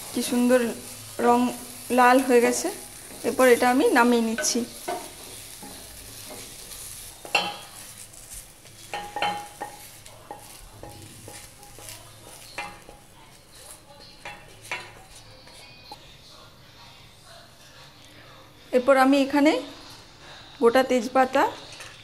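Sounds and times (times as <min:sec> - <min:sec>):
hot oil sizzling: 0:00.0 - 0:16.0.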